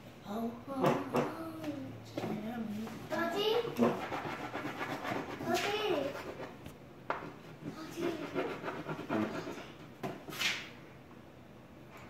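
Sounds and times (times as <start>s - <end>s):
crayon scratching on board: 3.7s - 9.8s.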